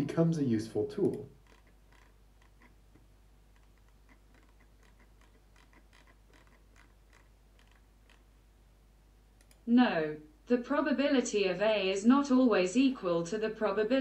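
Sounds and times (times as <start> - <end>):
soft irregular clicks: 1.0 - 8.3, 9.3 - 9.7.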